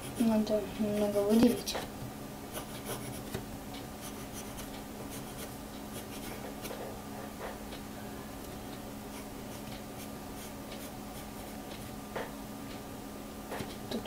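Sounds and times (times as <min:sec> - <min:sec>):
pencil scratching on paper: 0:00.0 - 0:00.4, 0:02.5 - 0:03.4, 0:04.0 - 0:06.8, 0:09.1 - 0:11.6.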